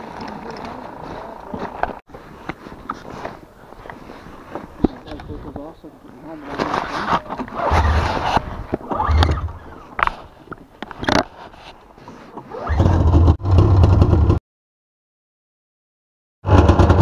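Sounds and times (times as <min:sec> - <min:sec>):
snowmobile engine starting: 0:06.8 - 0:09.8, 0:12.4 - 0:14.4, 0:16.5 - 0:17.0.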